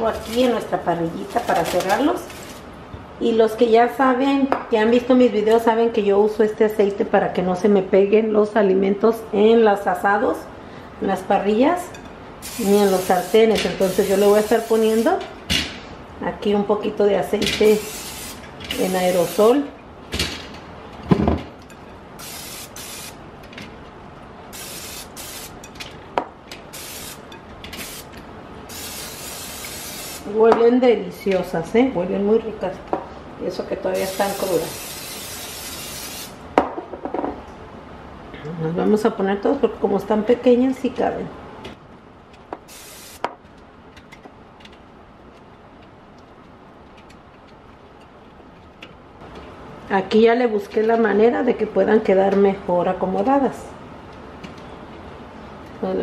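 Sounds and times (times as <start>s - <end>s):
aerosol spray can hissing: 12.4s - 15.1s, 17.7s - 19.5s, 22.2s - 23.2s, 24.6s - 25.5s, 26.8s - 27.2s, 28.7s - 30.3s, 34.0s - 36.4s, 42.7s - 43.2s
short hiss: 42.7s - 43.2s.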